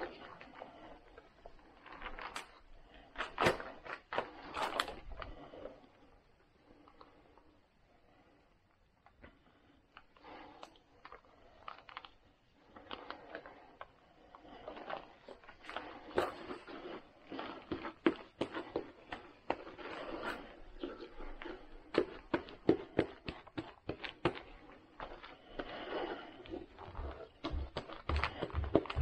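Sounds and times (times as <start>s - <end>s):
plastic film crinkling: 10.0s - 25.6s.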